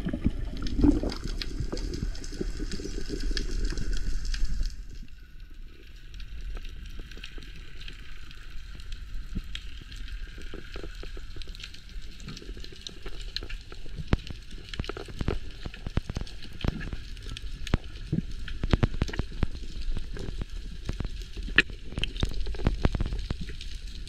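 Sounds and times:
low underwater rumble: 0:00.0 - 0:09.6
underwater crackling clicks and pops: 0:00.0 - 0:24.0.

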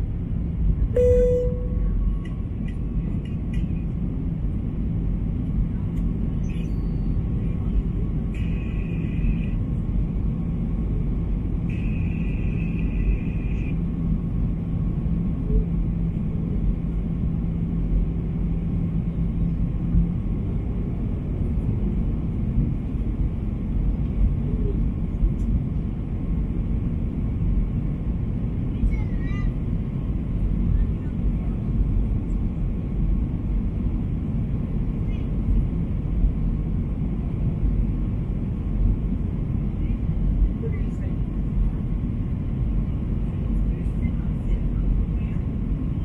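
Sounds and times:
low hum: 0:00.0 - 0:03.9
jet engine cabin rumble: 0:00.0 - 0:46.0
brief high-pitched sounds: 0:01.0 - 0:01.9.

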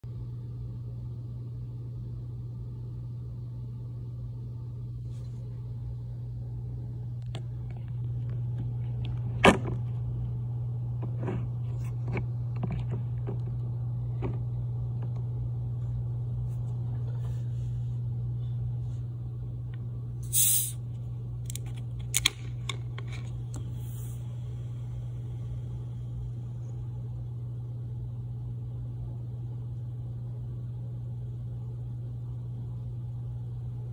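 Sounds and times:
steady low hum: 0:00.0 - 0:33.9
carbonation hissing from bottle: 0:20.2 - 0:20.8.

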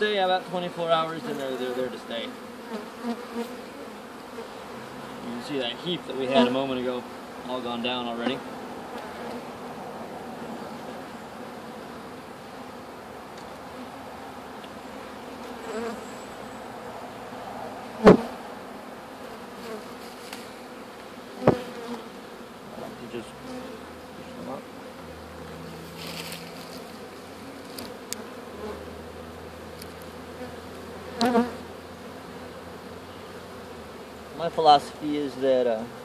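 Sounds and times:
bees buzzing: 0:00.0 - 0:36.0.

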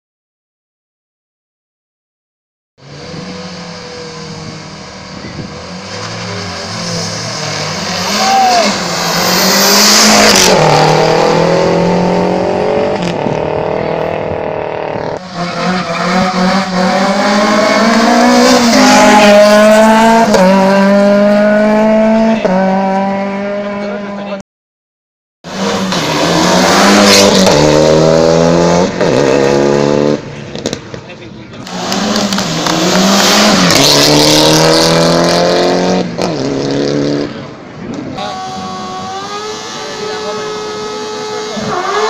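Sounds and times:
race car engine revving: 0:02.8 - 0:24.4, 0:25.5 - 0:30.9, 0:31.6 - 0:42.0.

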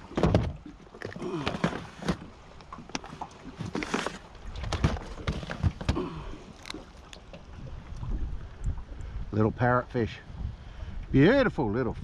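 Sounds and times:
fishing gear clattering in boat: 0:00.0 - 0:07.5.

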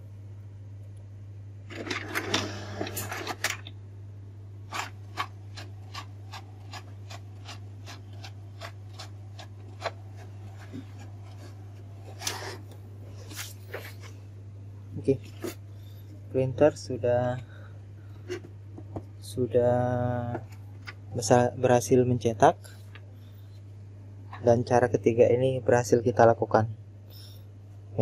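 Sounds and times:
printer clattering: 0:01.7 - 0:03.7.

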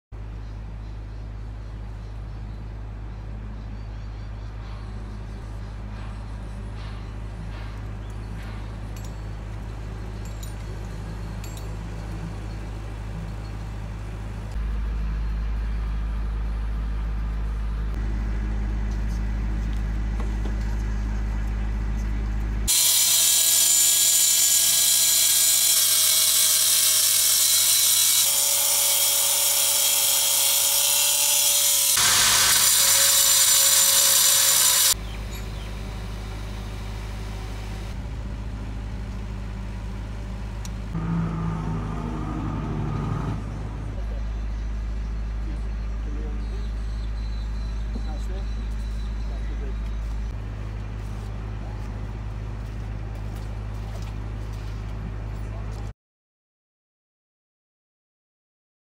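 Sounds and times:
angle grinder cutting stone: 0:22.7 - 0:35.0.

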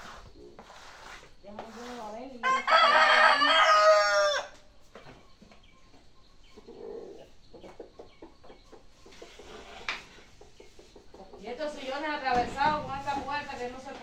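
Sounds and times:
rooster crowing: 0:02.4 - 0:04.6
faint knocks and scrapes: 0:07.5 - 0:14.0.

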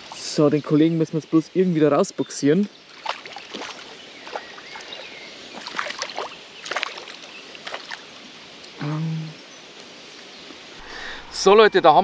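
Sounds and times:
water splashing: 0:02.9 - 0:08.8.

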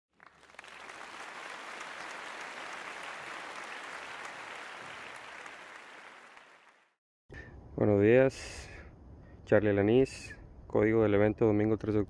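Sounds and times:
crowd applause: 0:00.1 - 0:07.0.

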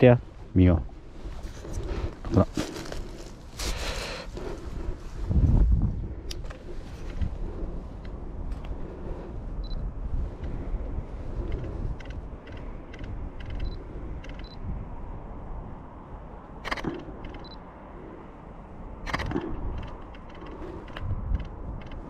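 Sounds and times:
low rumble: 0:00.0 - 0:22.0
camera shutter double click: 0:16.6 - 0:17.5
light camera clicks: 0:16.6 - 0:17.6, 0:19.0 - 0:22.0.

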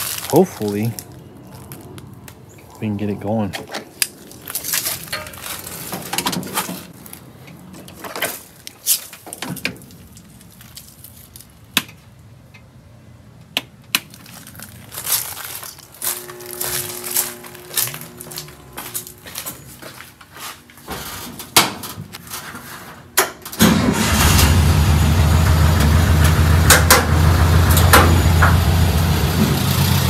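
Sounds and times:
objects rustling and crinkling: 0:00.0 - 0:02.5, 0:03.5 - 0:12.1, 0:14.0 - 0:23.2
faint two-tone hum: 0:15.8 - 0:20.3.

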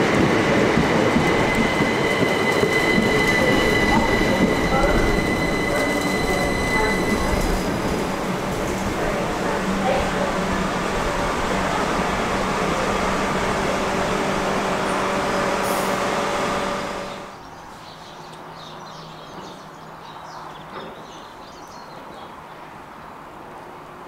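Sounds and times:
train electric hum: 0:00.0 - 0:17.4
train wheels rumbling: 0:00.0 - 0:17.4
distant train approaching: 0:00.0 - 0:17.5.

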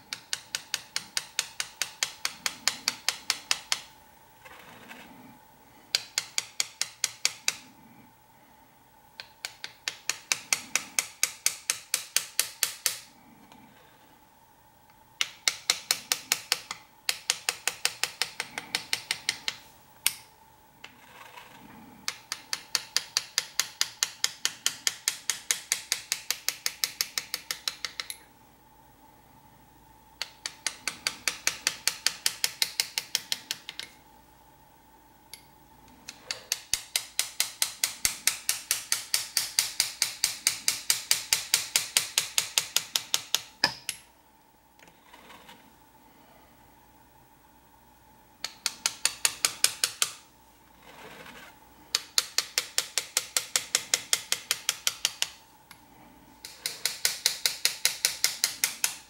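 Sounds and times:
hammer tapping a chisel on metal: 0:00.0 - 0:05.1, 0:05.9 - 0:07.7, 0:09.2 - 0:13.2, 0:15.2 - 0:20.3, 0:20.9 - 0:28.3, 0:30.2 - 0:34.0, 0:36.1 - 0:44.1, 0:48.4 - 0:50.2, 0:51.9 - 0:55.8, 0:56.4 - 0:59.0.

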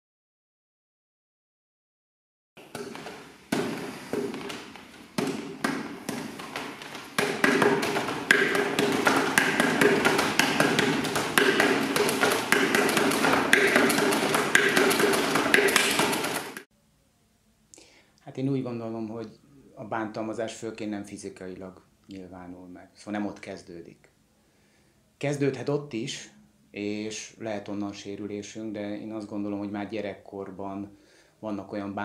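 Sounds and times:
hands knocking wooden dummy: 0:02.6 - 0:16.7.

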